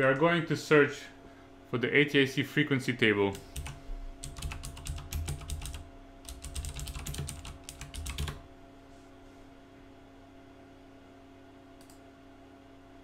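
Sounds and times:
faint steady hum: 0:00.0 - 0:13.0
keyboard typing clicks: 0:03.3 - 0:08.4, 0:11.8 - 0:12.0.

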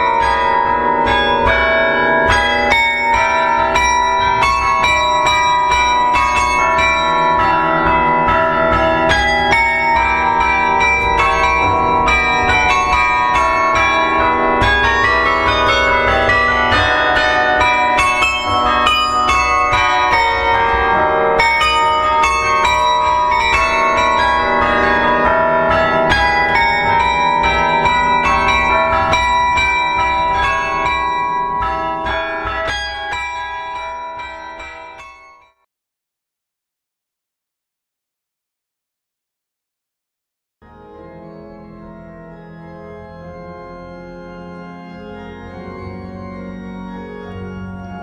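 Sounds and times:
carillon bells playing melody: 0:00.0 - 0:35.6.

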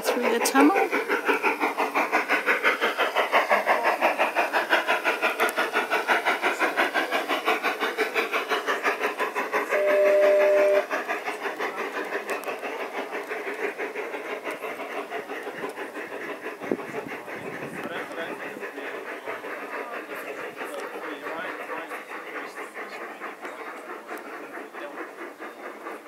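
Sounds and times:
model steam locomotive chuffing: 0:00.0 - 0:26.0
train whistle blast: 0:09.8 - 0:10.9.

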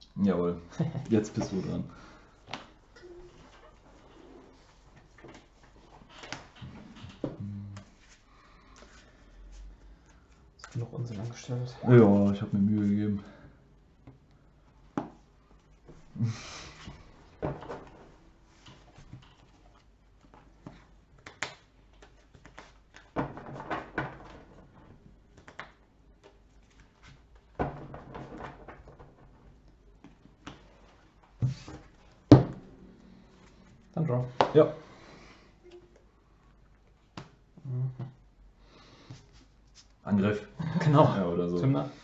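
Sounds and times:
playing cards handled on a table: 0:16.8 - 0:29.0, 0:39.0 - 0:40.0.

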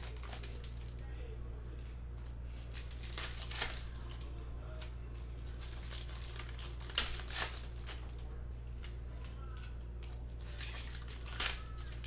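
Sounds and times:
card pack wrapper crinkling: 0:00.0 - 0:01.0, 0:05.4 - 0:08.2, 0:09.6 - 0:12.0.

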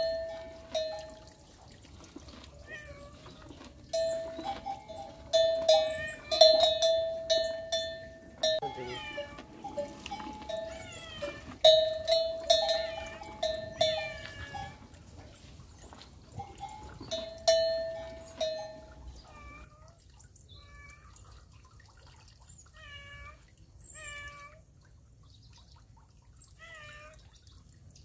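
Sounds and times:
curving chirp-like calls: 0:04.0 - 0:07.7
bell-like notes: 0:04.0 - 0:14.8.

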